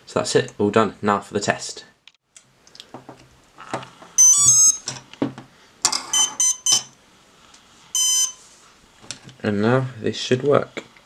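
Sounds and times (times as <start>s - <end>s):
motor start-up beeps: 4.2s - 4.8s, 6.1s - 6.9s, 8.0s - 8.4s.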